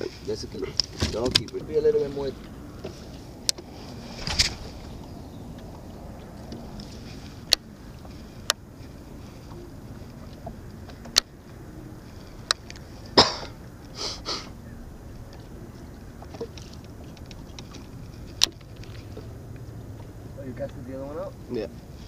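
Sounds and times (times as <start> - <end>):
person coughing: 13.2 - 13.6.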